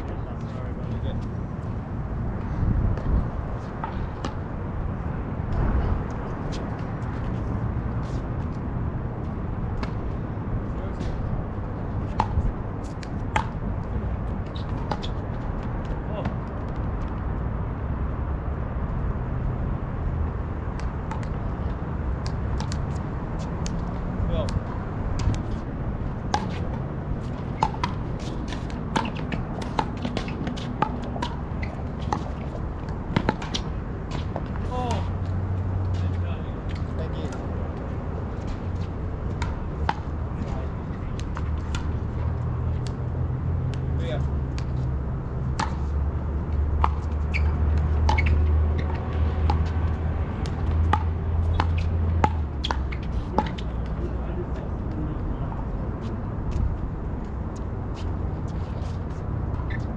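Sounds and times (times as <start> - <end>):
steady low rumble: 0.0 - 48.0.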